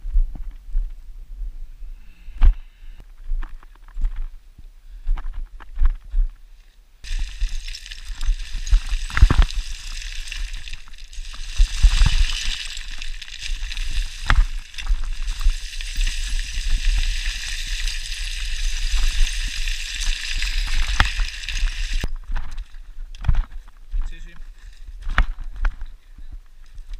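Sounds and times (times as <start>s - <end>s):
steady hiss: 7.0s - 22.1s.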